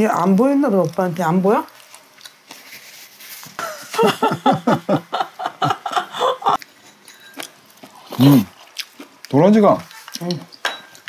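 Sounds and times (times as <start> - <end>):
person chuckling: 3.6 - 6.6.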